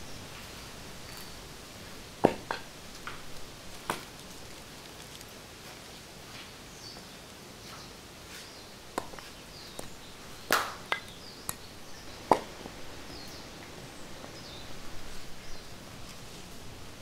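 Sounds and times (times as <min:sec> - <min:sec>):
steady hiss: 0:00.0 - 0:17.0
sharp snaps and knocks: 0:02.2 - 0:05.4, 0:08.9 - 0:12.8.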